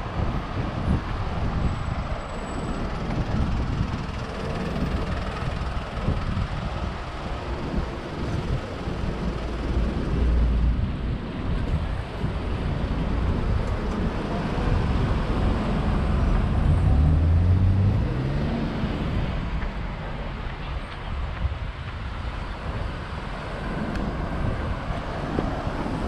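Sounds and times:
road noise rumble: 0.0 - 26.0
vehicle engine accelerating: 12.8 - 19.5.

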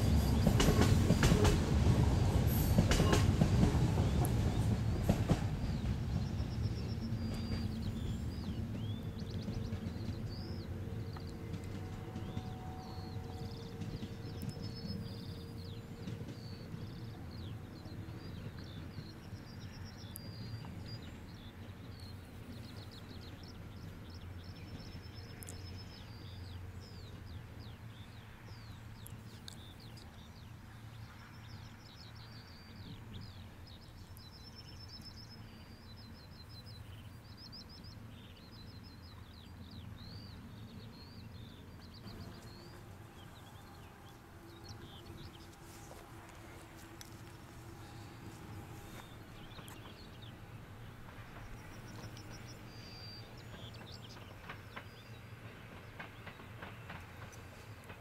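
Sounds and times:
birds singing and chirping: 0.0 - 30.4, 31.0 - 57.9
train rumble: 0.0 - 58.0.

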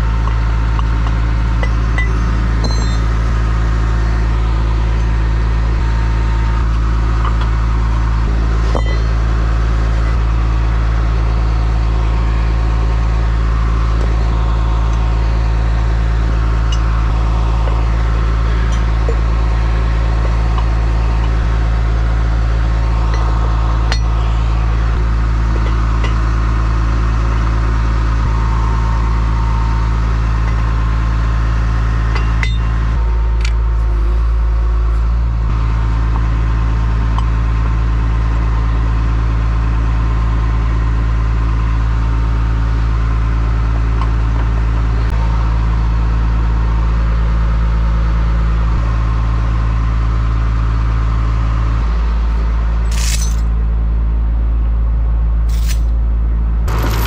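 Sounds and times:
diesel truck engine idling: 0.0 - 57.0
metallic clinks: 52.9 - 53.5, 55.5 - 55.9, 56.7 - 57.0.

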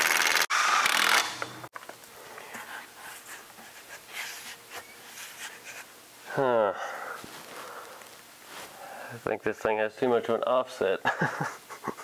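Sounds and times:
impact wrench running: 0.0 - 1.7
faint rustling: 7.1 - 8.9.

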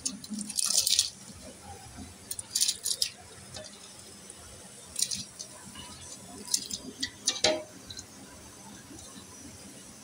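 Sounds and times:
rice grains rattling against steel: 0.0 - 1.4, 2.2 - 8.2.

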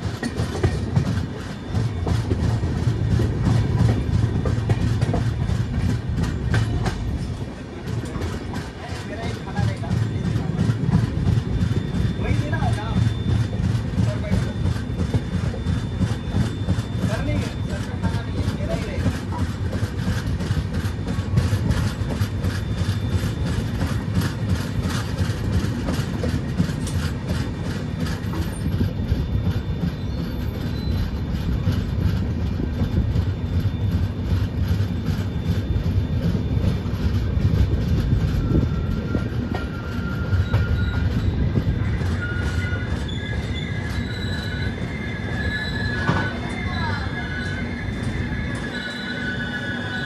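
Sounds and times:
train rumbling and clattering: 0.0 - 50.0
high wheel squeal: 8.1 - 50.0.

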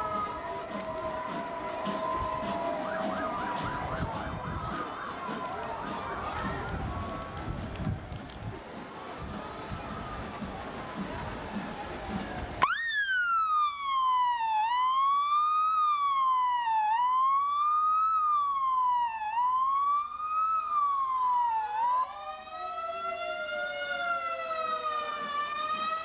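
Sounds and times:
ambulance siren wailing: 0.0 - 7.7, 9.4 - 26.0
siren tone gliding down: 11.8 - 26.0.

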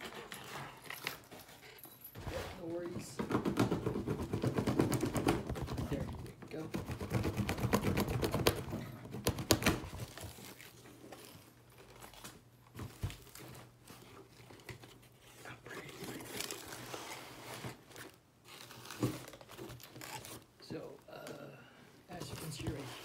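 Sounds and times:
knock on box: 3.2 - 6.0
cardboard rustling: 7.0 - 20.9, 22.1 - 23.0
cardboard scraping: 12.8 - 20.5, 22.1 - 23.0
packing tape tearing: 15.8 - 20.5.

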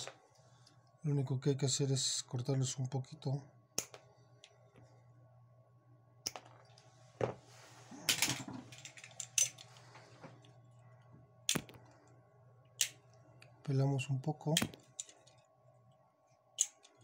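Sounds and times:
faint steady hum: 0.0 - 17.0
wire cutters snipping: 11.5 - 11.8.

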